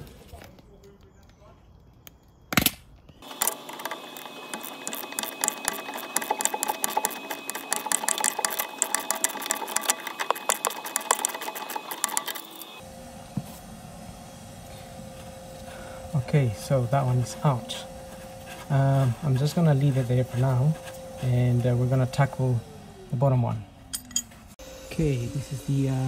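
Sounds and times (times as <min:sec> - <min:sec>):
hand ratchet clicking rapidly: 0:03.2 - 0:12.8.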